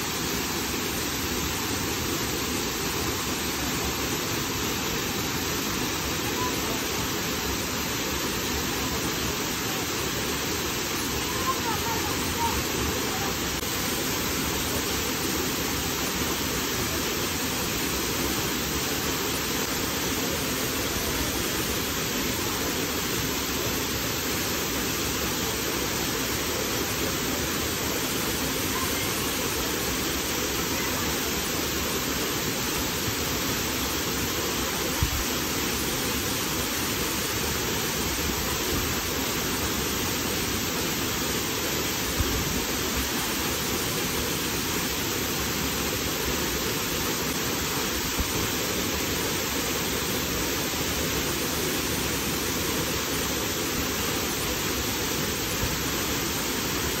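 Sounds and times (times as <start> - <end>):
waterfall rushing: 0.0 - 57.0.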